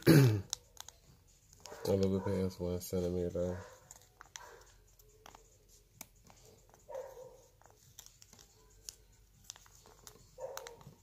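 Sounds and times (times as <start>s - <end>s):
fingernails ticking on paper: 0.4s - 2.4s, 3.5s - 11.0s
faint dog barks: 1.6s - 2.6s, 3.2s - 4.8s, 6.4s - 7.6s, 9.8s - 11.0s.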